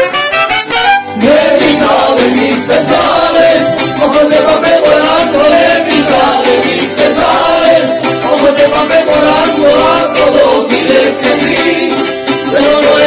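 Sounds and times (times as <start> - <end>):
trumpet notes: 0.0 - 1.2
mariachi band music: 0.0 - 13.0
person singing: 1.0 - 13.0.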